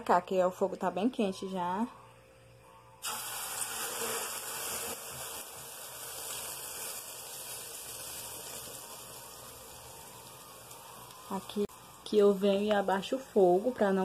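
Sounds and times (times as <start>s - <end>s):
batter sizzling in hot oil: 3.0s - 14.0s.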